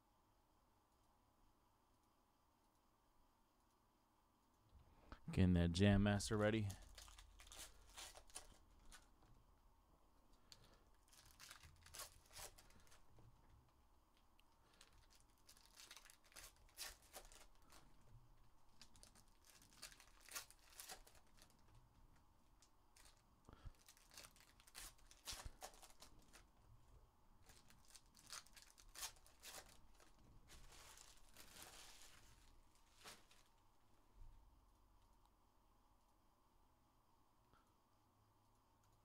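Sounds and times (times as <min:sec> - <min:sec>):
cards handled: 0:06.6 - 0:09.1
foil wrappers tearing and crinkling: 0:06.7 - 0:09.1, 0:10.5 - 0:13.0, 0:14.6 - 0:18.0, 0:18.7 - 0:21.7, 0:22.9 - 0:26.5, 0:27.4 - 0:33.5.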